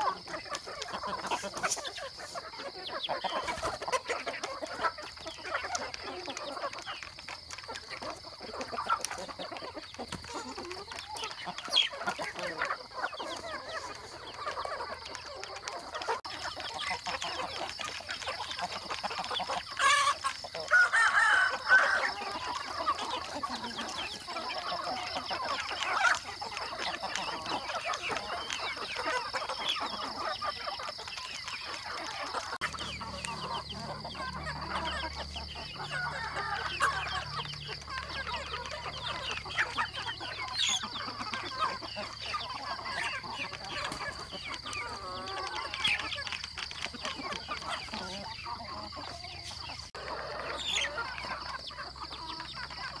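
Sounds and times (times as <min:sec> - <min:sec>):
chickens clucking: 0:00.0 - 0:53.0
rooster crowing: 0:20.7 - 0:22.5.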